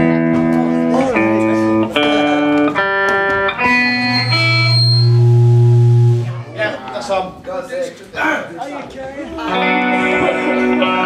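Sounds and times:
live band with electric guitar: 0.0 - 6.7, 9.4 - 11.0.

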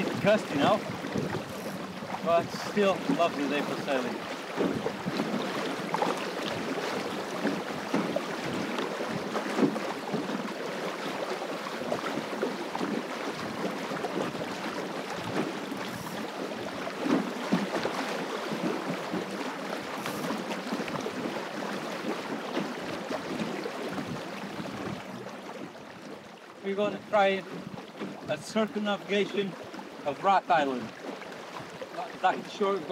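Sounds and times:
wind buffeting microphone: 0.0 - 10.3
water rushing along boat hull: 0.0 - 32.9.

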